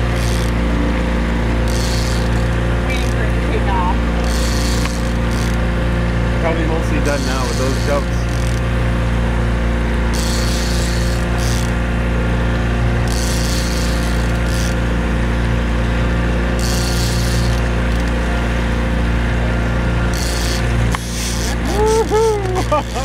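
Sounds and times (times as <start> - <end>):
fishing reel drag buzzing: 0.0 - 12.2, 12.9 - 23.0
boat motor running: 0.0 - 23.0.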